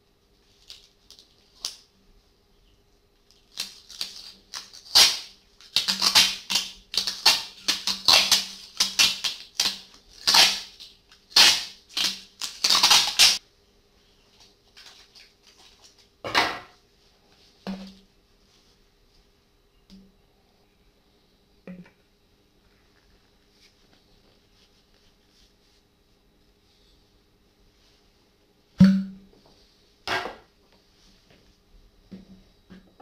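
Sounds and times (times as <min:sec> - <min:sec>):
adhesive tape ripping off roll: 0:03.4 - 0:13.4.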